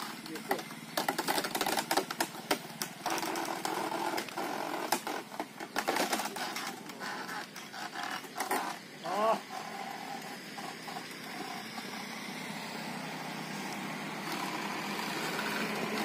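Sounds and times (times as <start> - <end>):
wooden rollers creaking and knocking: 0.0 - 16.0.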